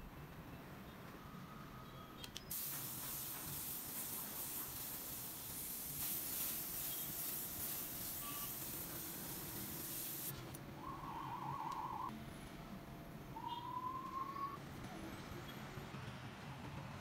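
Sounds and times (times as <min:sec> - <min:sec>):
spray gun hissing: 0:02.5 - 0:10.3.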